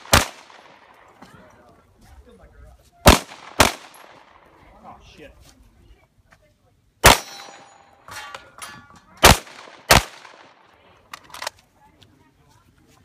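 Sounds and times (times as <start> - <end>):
gunshots: 0.0 - 0.9, 3.0 - 4.4, 7.0 - 7.7, 9.2 - 10.7
steel targets ringing: 7.1 - 9.1.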